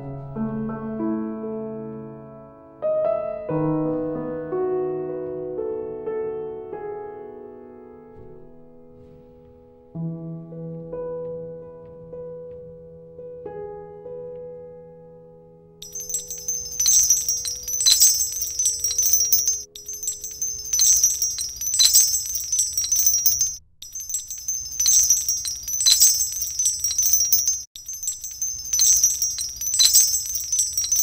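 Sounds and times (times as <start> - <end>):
small bells jingling: 15.8 - 31.0.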